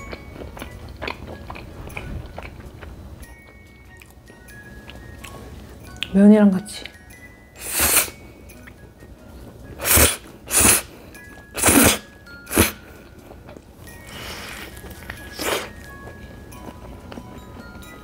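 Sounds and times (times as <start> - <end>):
faint background music: 0.0 - 18.0
noodles being slurped: 9.8 - 10.9, 11.6 - 12.8.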